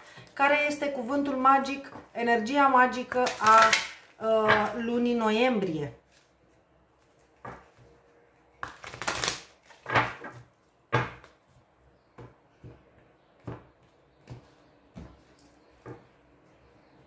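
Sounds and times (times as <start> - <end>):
cards shuffling: 8.6 - 10.0.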